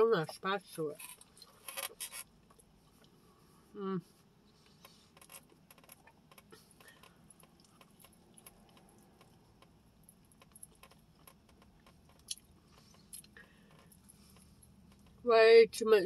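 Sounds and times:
close-up chewing: 0:04.7 - 0:15.2.

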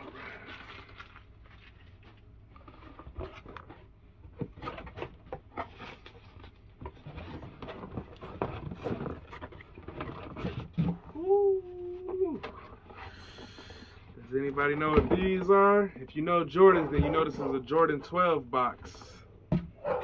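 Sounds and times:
plastic packing crinkling: 0:00.0 - 0:03.9
cardboard flaps scraping and rustling: 0:00.0 - 0:11.2.

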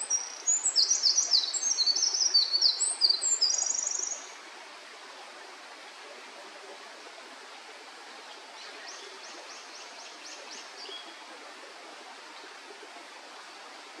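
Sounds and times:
wren singing: 0:00.0 - 0:04.2
steady background hiss: 0:00.0 - 0:14.0.

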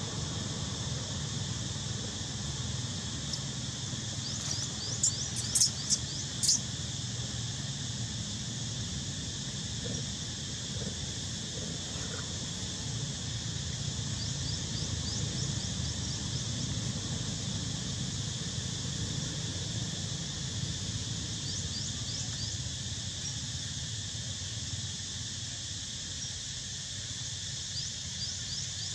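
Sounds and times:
high-pitched insect drone: 0:00.0 - 0:28.9
thin rising chirps: 0:04.2 - 0:06.7.

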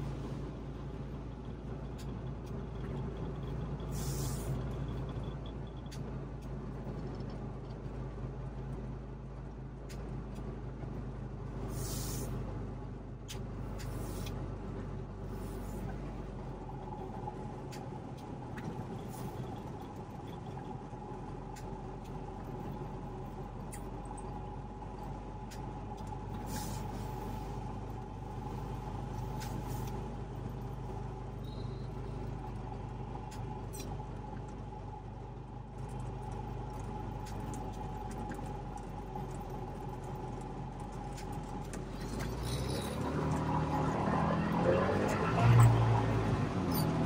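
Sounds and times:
car engine running: 0:00.0 - 0:47.0
brief hissing: 0:03.9 - 0:04.5, 0:11.7 - 0:12.3, 0:26.4 - 0:27.4.

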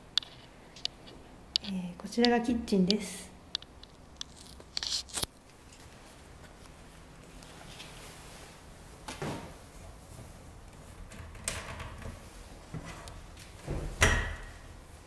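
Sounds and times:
soft brushing sounds: 0:05.6 - 0:10.6.

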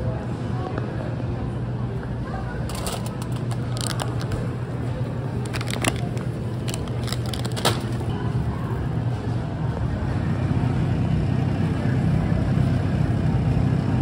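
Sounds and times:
plastic snack bag crinkling: 0:02.7 - 0:04.6, 0:05.3 - 0:08.1.

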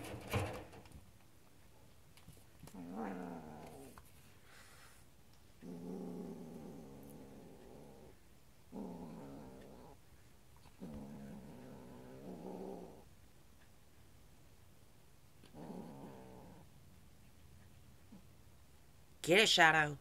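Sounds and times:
kitten growling: 0:02.6 - 0:04.1, 0:05.6 - 0:10.0, 0:10.6 - 0:13.1, 0:15.4 - 0:16.7.

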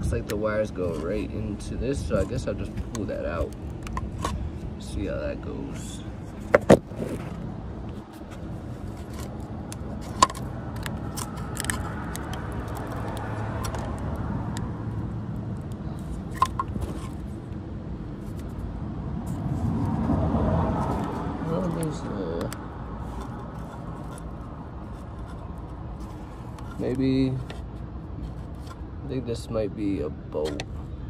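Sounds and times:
hands rustling plastic wiring: 0:06.4 - 0:14.6.

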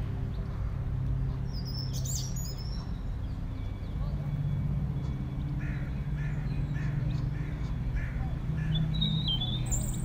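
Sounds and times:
steady low drone: 0:00.0 - 0:10.0
bird chirping: 0:01.5 - 0:07.4, 0:08.7 - 0:10.0.

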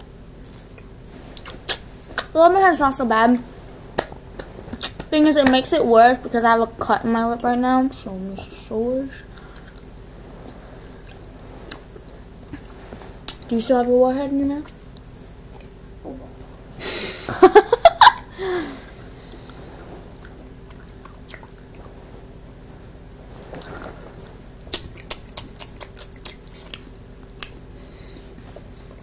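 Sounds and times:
sucking and chewing candy: 0:24.7 - 0:27.6.

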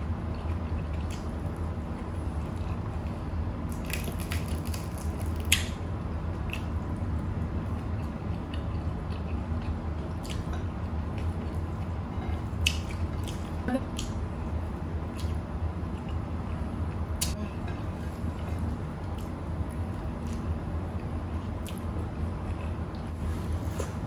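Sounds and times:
steady low hum: 0:00.0 - 0:24.0
chewing with wet mouth smacks: 0:07.7 - 0:11.9, 0:20.2 - 0:23.1.

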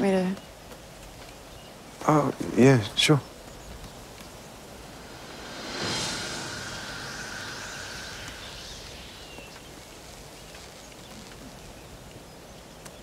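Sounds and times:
shimmering magic sound effect: 0:04.6 - 0:10.3.

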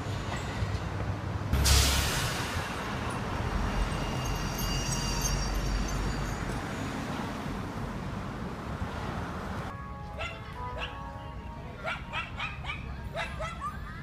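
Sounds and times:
passing cars rumble and hiss: 0:00.0 - 0:09.8.

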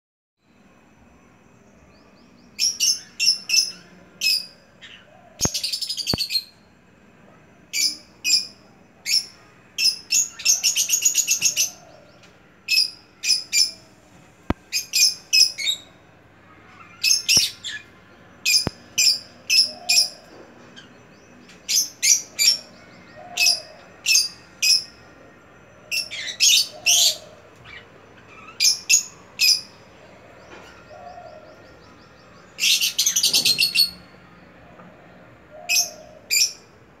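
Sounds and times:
lovebirds chirping: 0:01.2 - 0:36.8.

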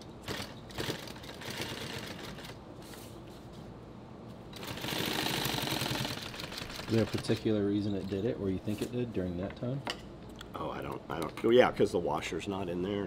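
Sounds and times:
industrial sewing machine stitching: 0:00.3 - 0:02.6, 0:04.6 - 0:07.4.

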